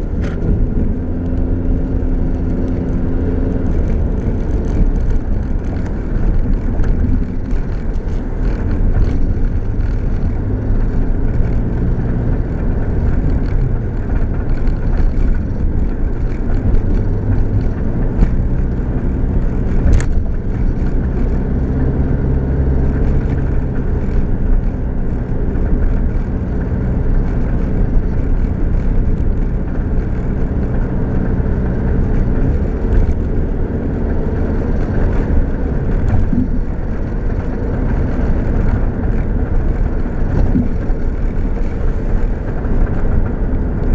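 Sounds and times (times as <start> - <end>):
engine drone: 0.0 - 43.9
road rumble: 0.0 - 43.9.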